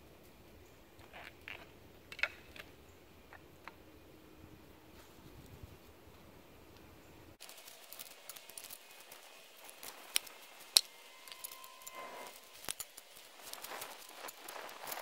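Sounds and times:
dry leaves rustling underfoot: 0:07.4 - 0:15.0.

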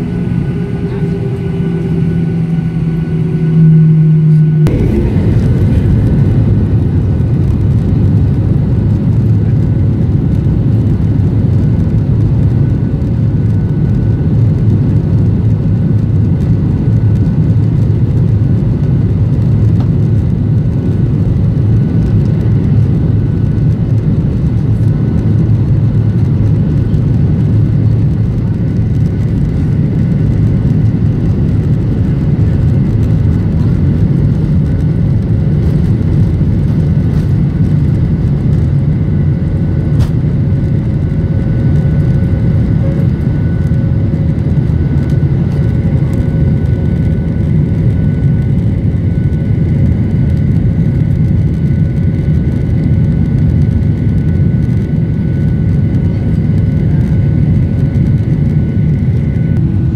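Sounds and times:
faint whining tones: 0:00.0 - 0:09.5, 0:22.1 - 0:50.5
jet engine rumble in cabin: 0:00.0 - 0:59.9.

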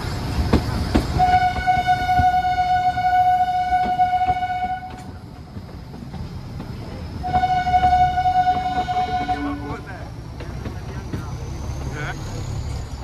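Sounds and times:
train carriages rumbling on track: 0:00.0 - 0:13.0
train horn blasts: 0:01.2 - 0:05.1, 0:07.2 - 0:09.9.

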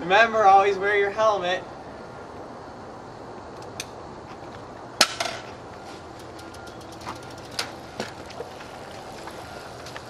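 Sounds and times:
bicycle ticking rolling on concrete: 0:04.3 - 0:10.0
bicycle knocks: 0:05.0 - 0:10.0.

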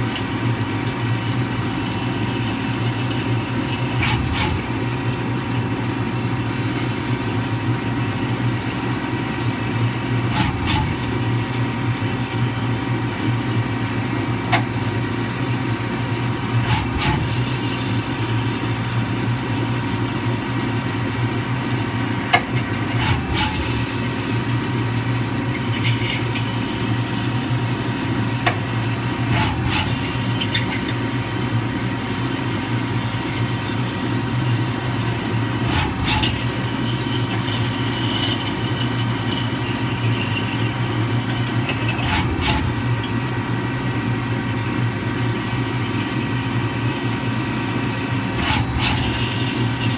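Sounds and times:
coolant splashing: 0:00.0 - 0:49.9
lathe machine hum: 0:15.4 - 0:49.9.

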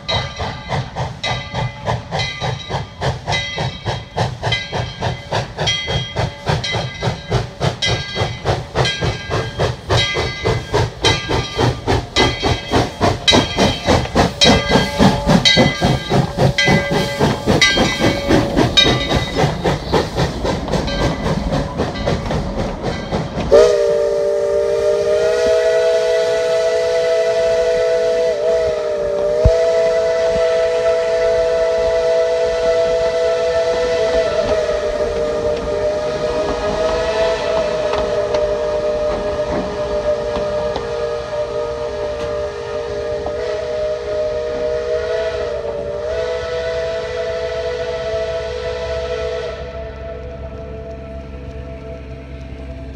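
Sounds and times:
steam locomotive exhaust chuffing: 0:00.0 - 0:52.9
steam whistle blast: 0:23.5 - 0:52.1.

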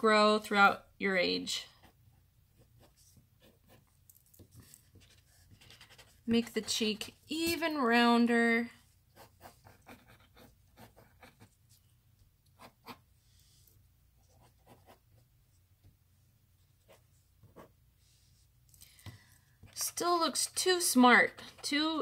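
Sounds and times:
pencil sketching on paper: 0:01.7 - 0:03.8, 0:04.5 - 0:07.0, 0:08.8 - 0:11.8, 0:12.6 - 0:15.3, 0:16.8 - 0:18.5.

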